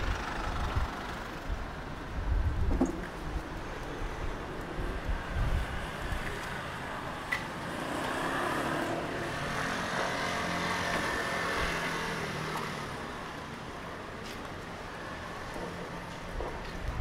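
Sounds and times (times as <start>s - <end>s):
vehicle passing: 4.8s - 13.6s.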